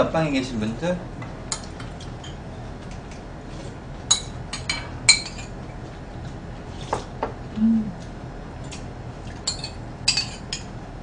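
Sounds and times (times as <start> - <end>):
utensils clinking against bowls: 9.4 - 10.7.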